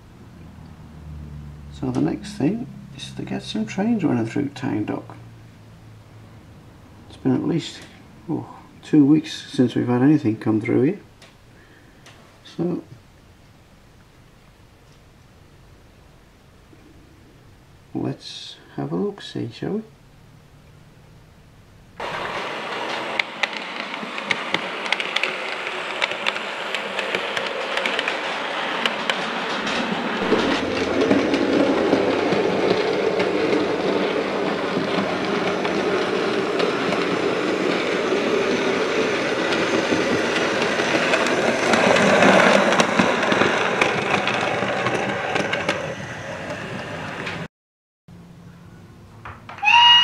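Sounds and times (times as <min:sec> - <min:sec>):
model train running on track: 0:22.0 - 0:47.5
wheel clicks over rail joints: 0:39.3 - 0:47.4.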